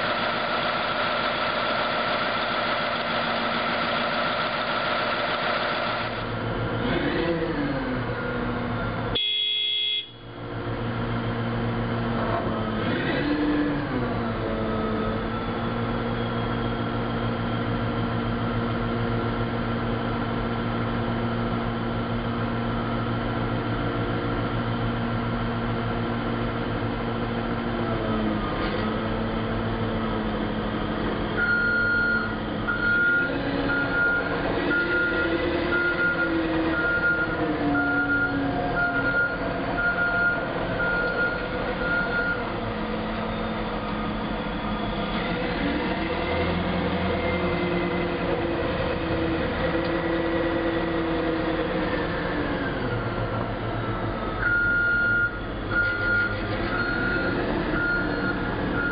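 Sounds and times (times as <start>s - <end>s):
diesel engine idling and revving: 0.0s - 9.2s, 9.9s - 58.9s
reverse alarm beeping: 31.4s - 42.5s, 54.3s - 58.9s.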